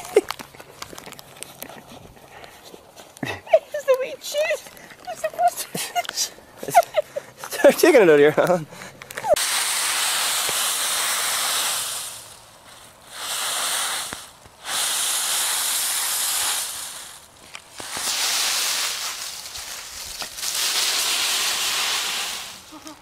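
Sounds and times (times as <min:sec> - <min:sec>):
dry leaves rustling and crackling: 0:09.3 - 0:23.0.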